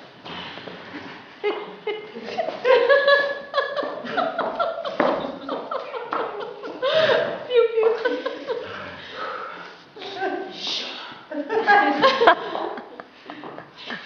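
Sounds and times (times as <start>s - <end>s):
wordless vocal sounds: 8.4s - 11.4s.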